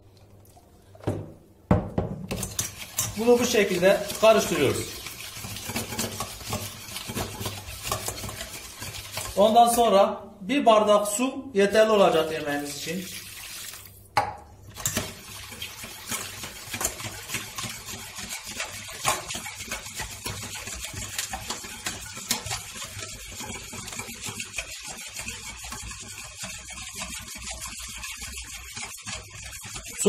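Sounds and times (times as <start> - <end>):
knock: 1.0 - 2.2
whisk clicking against steel bowl: 2.3 - 9.8, 14.8 - 30.0
water pouring into bowl: 12.6 - 14.0.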